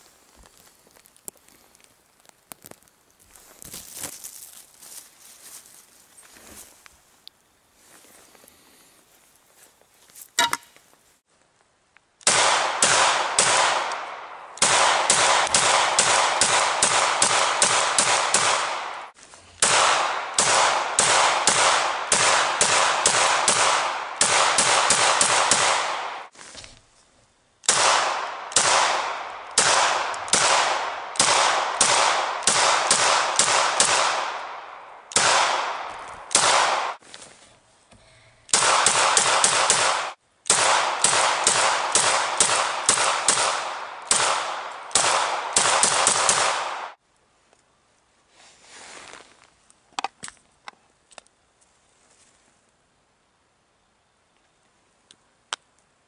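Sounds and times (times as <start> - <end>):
pistol firing rapid shots: 12.2 - 26.3, 27.6 - 37.0, 38.5 - 47.0.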